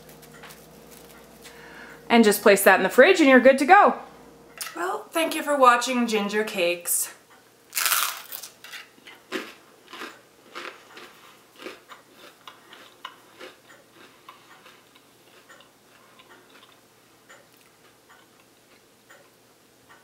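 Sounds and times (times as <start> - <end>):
crunchy chewing of toast: 0.0 - 1.6, 7.7 - 18.9.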